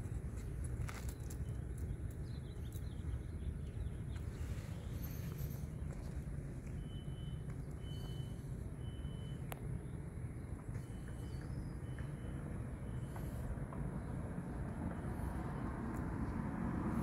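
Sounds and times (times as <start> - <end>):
faint high-pitched chirps: 6.7 - 10.0.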